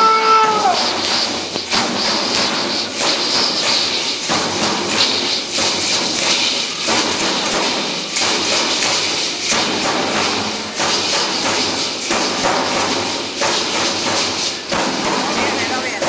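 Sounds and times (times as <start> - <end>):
hand rattles shaking: 0.6 - 16.0.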